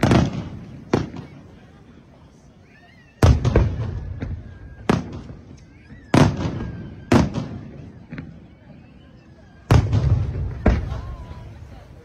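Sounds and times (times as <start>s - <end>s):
firework bangs with rumbling echo: 0.0s - 1.5s, 3.2s - 5.5s, 6.1s - 8.4s, 9.7s - 11.6s.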